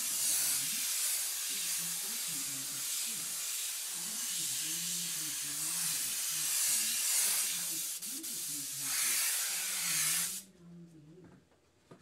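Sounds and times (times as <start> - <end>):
airbrush hissing: 0.0 - 10.4.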